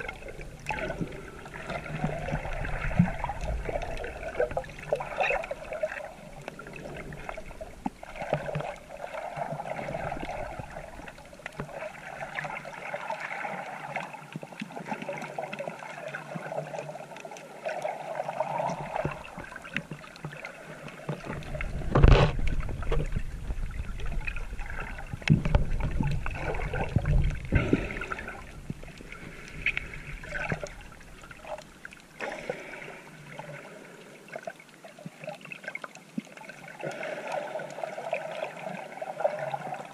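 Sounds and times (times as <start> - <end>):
water sloshing and gurgling: 0.0 - 39.9
low bumps and rumbles: 21.4 - 29.0.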